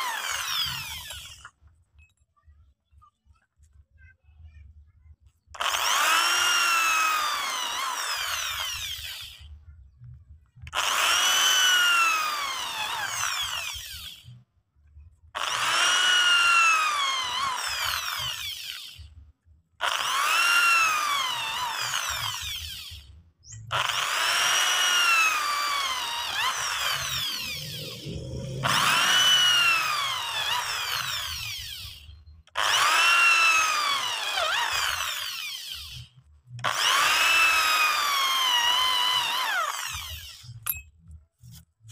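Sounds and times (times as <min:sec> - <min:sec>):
drill bit rasping wood: 0:00.0 - 0:01.4, 0:05.6 - 0:09.4, 0:10.7 - 0:14.3, 0:15.4 - 0:19.0, 0:19.8 - 0:23.0, 0:23.7 - 0:40.7
electric drill whining: 0:00.0 - 0:01.5, 0:05.6 - 0:09.5, 0:10.7 - 0:14.4, 0:15.4 - 0:19.2, 0:19.8 - 0:40.8.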